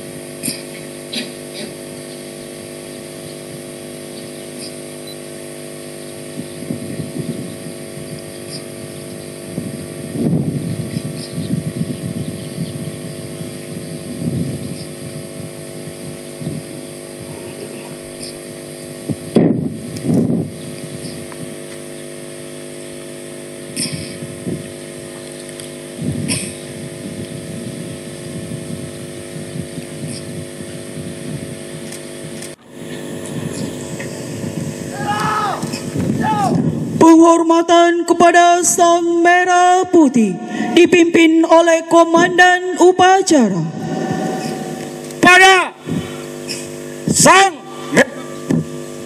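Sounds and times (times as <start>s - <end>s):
mechanical hum: 0.0s - 49.0s
low rumbling bursts: 39.9s - 42.4s, 43.3s - 46.3s.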